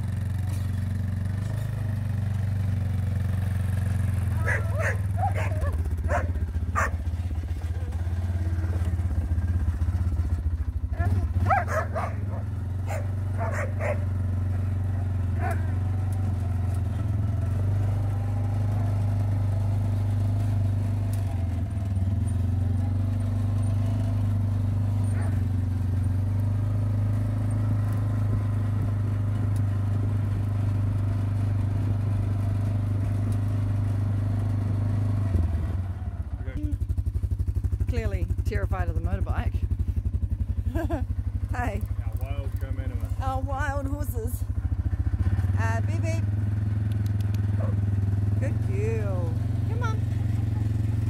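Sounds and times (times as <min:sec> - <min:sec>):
motorbike engine running: 0:00.0 - 0:51.0
dog barking: 0:04.4 - 0:07.1, 0:10.9 - 0:14.6, 0:15.4 - 0:15.8, 0:25.1 - 0:25.4, 0:47.6 - 0:47.8.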